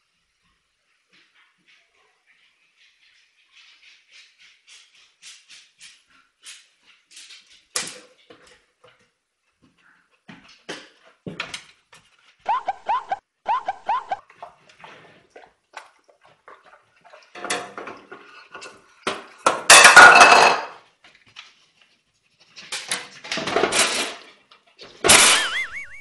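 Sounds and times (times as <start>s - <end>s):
dog whining: 12.5s - 14.2s.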